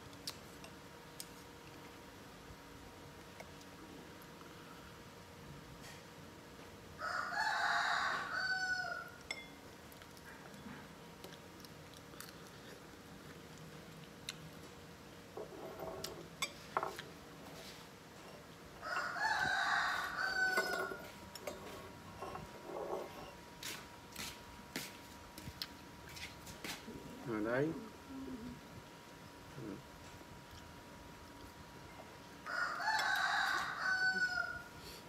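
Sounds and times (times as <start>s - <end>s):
rooster crowing: 7.0s - 9.2s, 18.8s - 21.1s, 32.4s - 34.8s.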